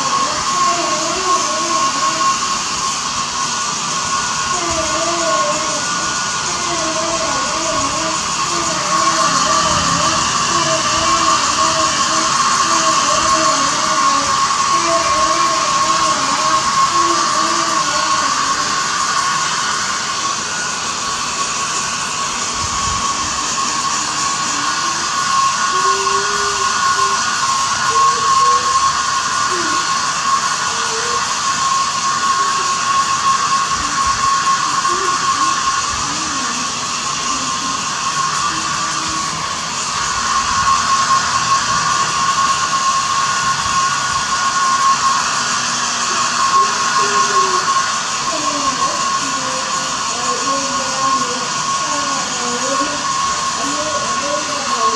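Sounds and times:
hair dryer blowing: 0.0s - 54.9s.

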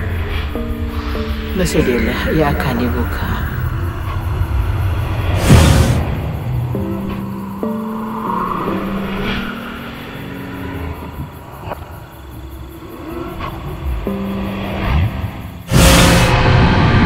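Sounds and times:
low rumble: 0.0s - 11.3s
whooshes: 0.0s - 11.8s, 13.1s - 17.0s
low drone notes: 0.0s - 17.0s.

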